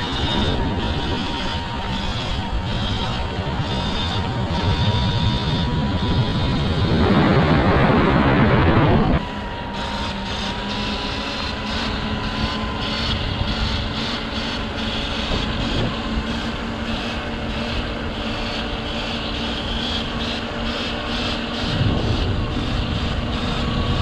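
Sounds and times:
wind rushing over microphone: 0:00.0 - 0:09.7, 0:11.5 - 0:18.8, 0:21.4 - 0:24.0
electric motor whine: 0:00.0 - 0:24.0.

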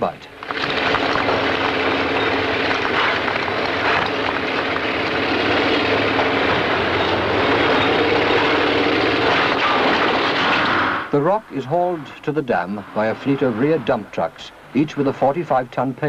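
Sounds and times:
face shovel mechanical drone: 0:00.3 - 0:15.4.

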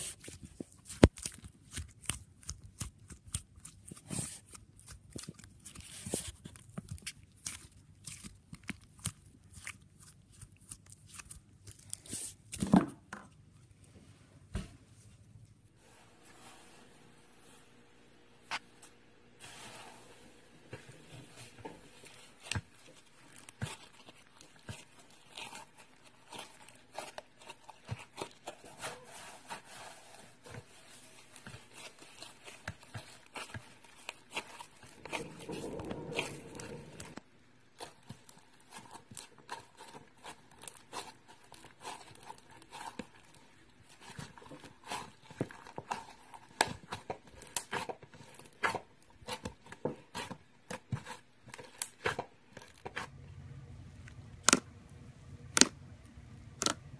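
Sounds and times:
foam slime crackling: 0:18.4 - 0:53.1.

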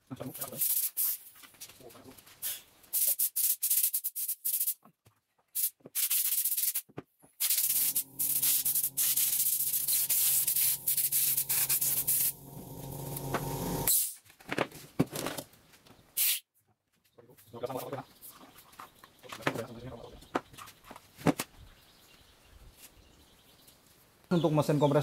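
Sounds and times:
air compressor motor humming: 0:07.4 - 0:13.9
compressed air hissing from hose: 0:07.4 - 0:13.9.

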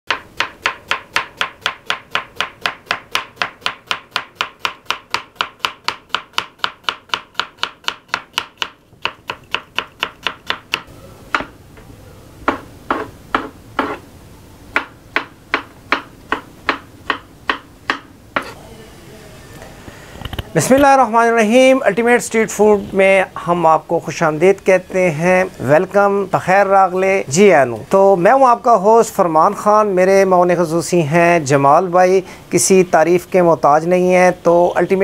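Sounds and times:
knife chopping on wooden board: 0:00.1 - 0:11.6, 0:12.4 - 0:14.0, 0:14.7 - 0:18.6
steady hiss: 0:09.0 - 0:35.0.

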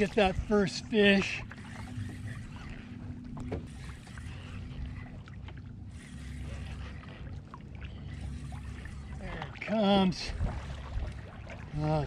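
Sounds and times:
water sloshing against kayak hull: 0:00.0 - 0:12.0
wind rumble on microphone: 0:08.1 - 0:12.0.

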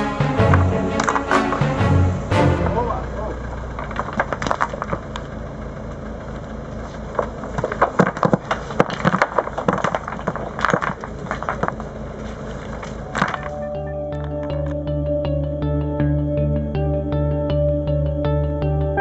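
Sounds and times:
tractor engine idling: 0:00.0 - 0:14.7
stones clattering on ground: 0:03.8 - 0:05.2, 0:07.0 - 0:13.6.

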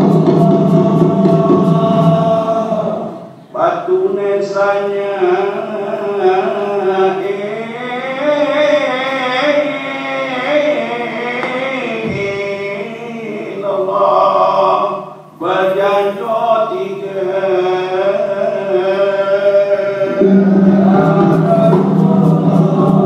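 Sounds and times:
voices chanting melodically: 0:00.0 - 0:23.0
low steady note: 0:20.0 - 0:23.0.

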